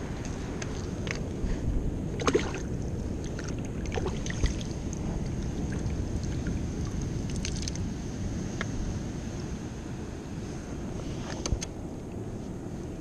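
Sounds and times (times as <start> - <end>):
water splashing in tide pool: 0.0 - 8.5
wind rumble on microphone: 0.0 - 13.0.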